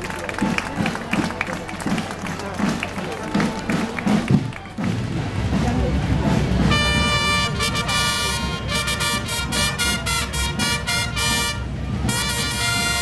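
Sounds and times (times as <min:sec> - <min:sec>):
trumpet fanfare: 0:06.6 - 0:13.0.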